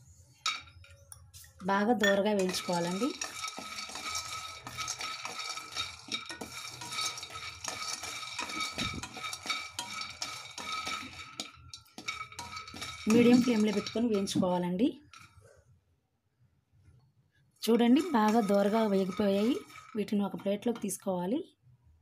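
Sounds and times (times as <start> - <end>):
wooden spatula stirring: 2.1 - 15.5, 17.6 - 21.0
nuts rattling in a pan: 2.3 - 15.4, 17.7 - 21.0.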